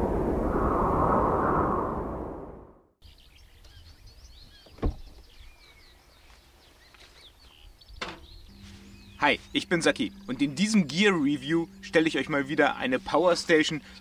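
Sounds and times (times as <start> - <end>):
rushing whoosh: 0.0 - 2.9
birds chirping: 3.0 - 14.0.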